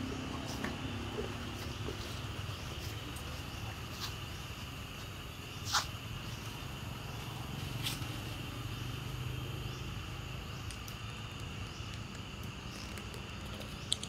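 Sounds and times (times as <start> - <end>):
high-pitched insect chorus: 0.0 - 14.0
faint clicks: 10.6 - 14.0.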